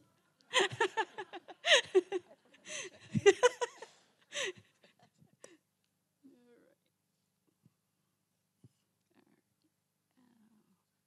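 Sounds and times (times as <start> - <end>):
people laughing: 0.5 - 4.0.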